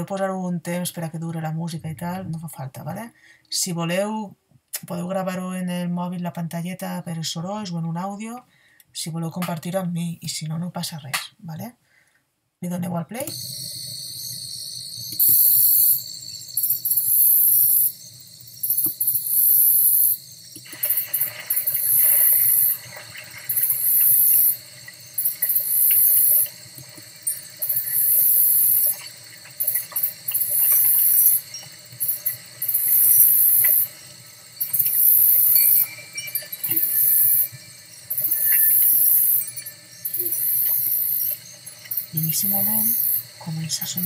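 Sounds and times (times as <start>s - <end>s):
crickets chirping: 13.1s - 44.0s
forest sounds: 13.3s - 44.0s.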